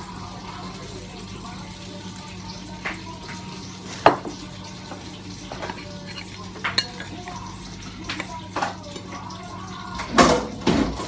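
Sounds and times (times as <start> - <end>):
plates and dishes clinking: 2.8 - 9.2.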